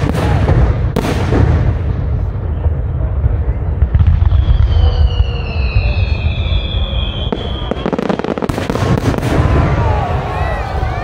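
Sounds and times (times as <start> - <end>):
firework bursts rumbling: 0.0 - 11.0
firework crackling: 0.0 - 11.0
falling firework whistle: 4.0 - 11.0.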